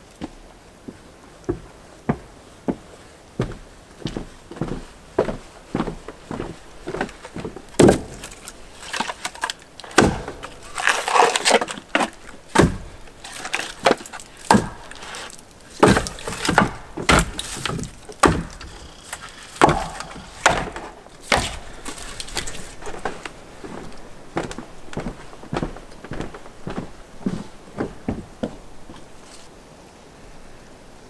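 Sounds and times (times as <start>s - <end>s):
firewood pieces knocking together: 7.7s - 22.8s.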